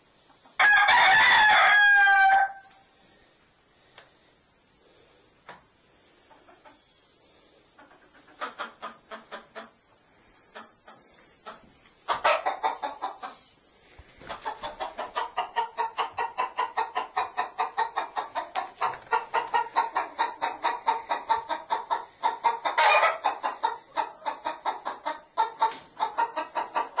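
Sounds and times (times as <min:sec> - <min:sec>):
chicken squawk: 0:00.6 - 0:02.8, 0:11.4 - 0:13.5, 0:14.2 - 0:27.0
chickens clucking: 0:05.4 - 0:27.0.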